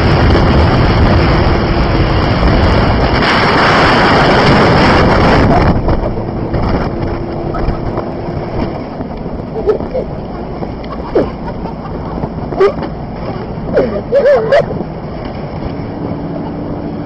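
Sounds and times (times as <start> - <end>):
vehicle road noise: 0.0 - 17.0
wind rushing over microphone: 0.0 - 17.0
faint engine hum: 4.9 - 17.0.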